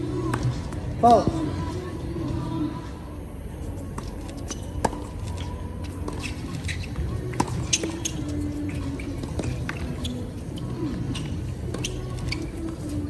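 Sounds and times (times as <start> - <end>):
sneakers squeaking on court: 3.9 - 13.0.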